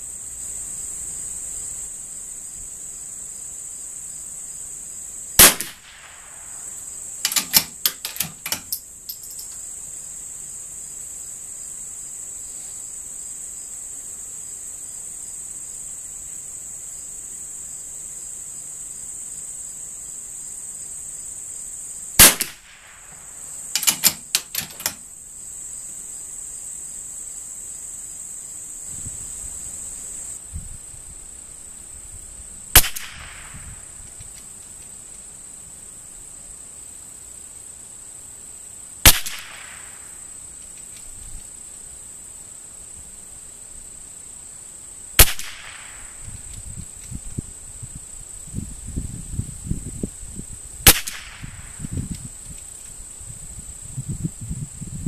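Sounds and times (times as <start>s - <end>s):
crickets chirping: 0.0s - 55.0s
rifle shots: 5.4s - 6.4s, 22.2s - 23.2s, 32.8s - 33.6s, 39.1s - 40.0s, 45.2s - 46.2s, 50.9s - 51.6s
rifle bolt clicking: 7.3s - 9.5s, 23.8s - 25.0s.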